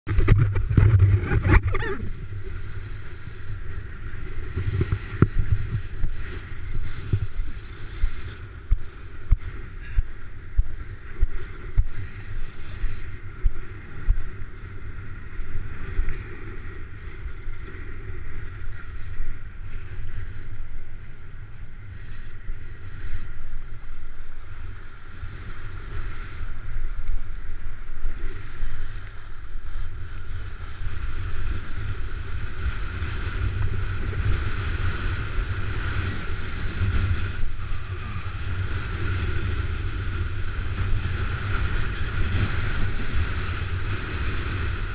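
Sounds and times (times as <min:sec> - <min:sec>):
wind buffeting microphone: 0:00.0 - 0:44.9.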